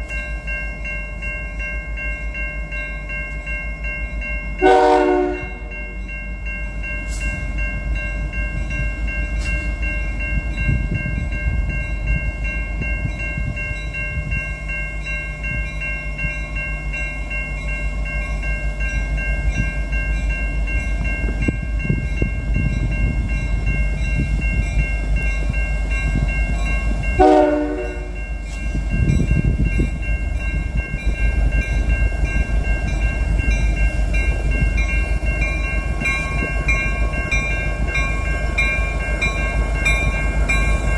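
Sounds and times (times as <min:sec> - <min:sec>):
locomotive bell ringing: 0:00.0 - 0:40.9
train air horn blast: 0:04.6 - 0:05.7, 0:27.2 - 0:28.2
diesel locomotive rumble: 0:16.9 - 0:40.9.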